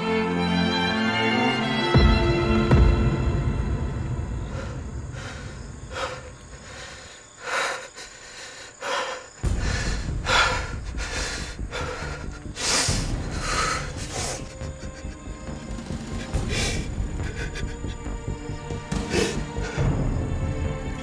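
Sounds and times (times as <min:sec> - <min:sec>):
man breathing hard and snorting: 0:04.4 - 0:20.0
low background rumble: 0:09.4 - 0:18.9.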